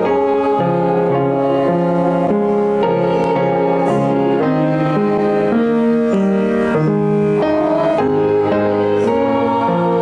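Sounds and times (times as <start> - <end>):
women singing a hymn: 0.0 - 10.0.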